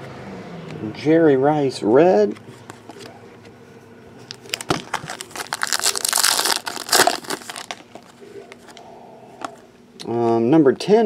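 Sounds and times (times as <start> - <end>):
foil wrapper crinkling: 4.3 - 8.8.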